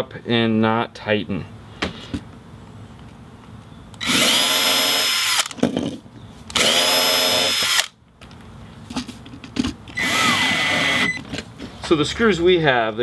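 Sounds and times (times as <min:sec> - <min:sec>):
cordless drill whining: 0:04.0 - 0:05.6, 0:06.5 - 0:07.9, 0:10.0 - 0:11.2.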